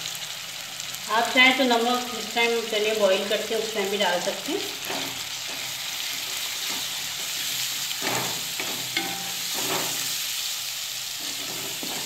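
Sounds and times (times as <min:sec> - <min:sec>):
food sizzling in oil: 0:00.0 - 0:12.0
spatula scraping pan: 0:04.8 - 0:10.4, 0:11.1 - 0:12.0.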